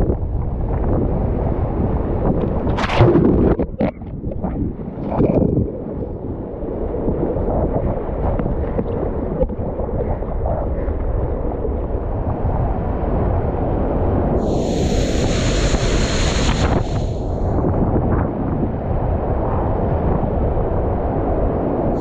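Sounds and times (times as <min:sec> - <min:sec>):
spray splashing over boat: 0:14.4 - 0:17.4.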